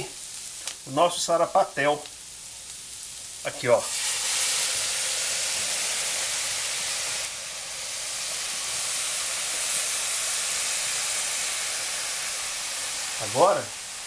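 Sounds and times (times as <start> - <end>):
meat sizzling in hot fat: 0.0 - 14.0.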